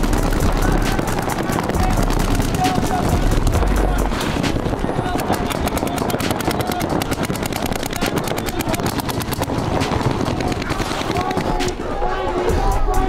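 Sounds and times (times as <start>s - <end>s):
paintball marker rapid shots: 0.0s - 11.8s.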